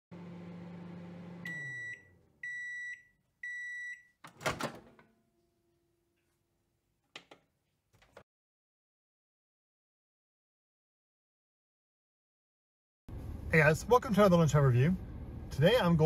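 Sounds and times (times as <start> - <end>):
microwave oven humming: 0.1 - 3.8.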